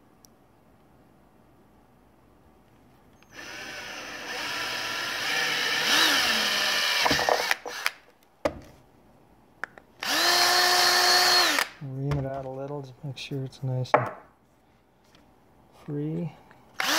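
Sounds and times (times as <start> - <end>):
cordless drill motor whine: 3.2 - 8.0, 10.0 - 11.7.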